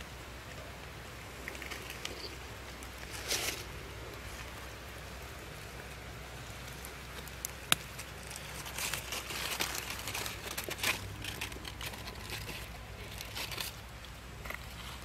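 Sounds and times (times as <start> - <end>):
dry leaves and straw rustling: 0.8 - 15.0.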